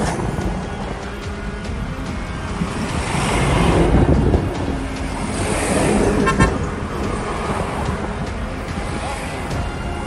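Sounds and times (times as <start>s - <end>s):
road and traffic noise: 0.0s - 10.0s
vehicle horn toot: 6.2s - 6.7s.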